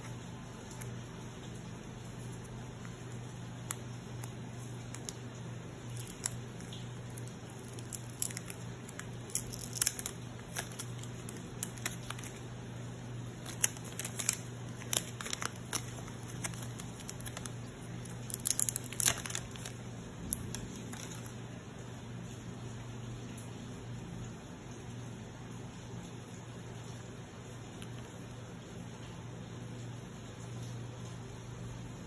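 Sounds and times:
plastic wrap crinkling: 0.0 - 21.5.

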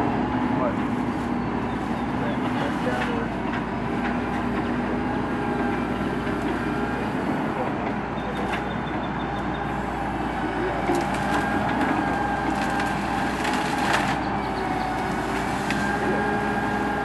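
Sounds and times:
loader machine whine: 0.0 - 17.0
branches cracking and snapping: 10.8 - 16.0.

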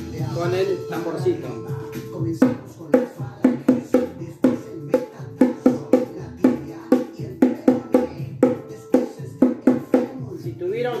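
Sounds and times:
song playing in background: 0.0 - 11.0
hand drum beat: 2.4 - 10.2.

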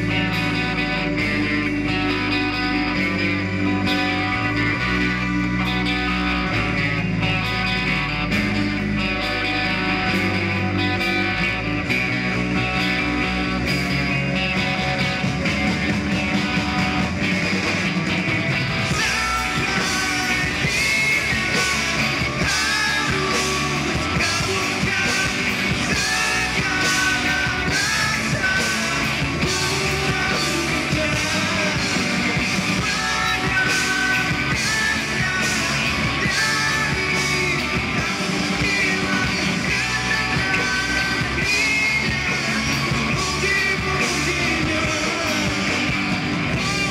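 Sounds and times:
rock band playing: 0.0 - 46.9
man singing and shouting: 18.8 - 46.9.

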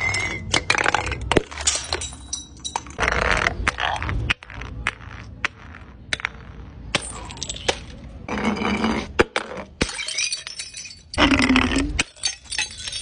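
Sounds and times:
glass jar breaking on stone: 0.4 - 3.0, 6.9 - 7.9, 9.8 - 13.0
glass shards scattering: 1.5 - 3.0, 7.0 - 7.9, 9.8 - 11.2, 12.0 - 13.0.

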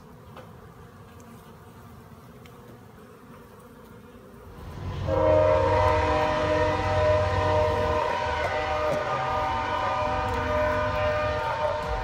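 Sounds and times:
low hum: 4.5 - 12.0.

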